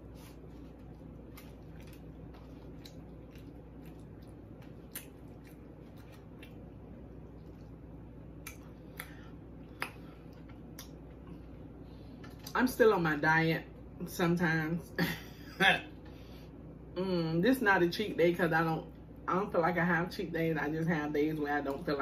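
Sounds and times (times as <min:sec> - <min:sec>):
wet chewing and mouth clicks: 0:00.0 - 0:11.2
steady low hum: 0:00.0 - 0:22.0.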